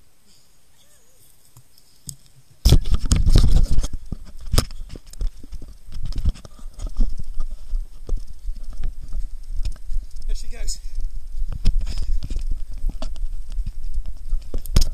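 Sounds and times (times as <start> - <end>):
thuds and rustling while running: 2.6 - 14.9
camera handling knocks and rumble: 2.7 - 9.9.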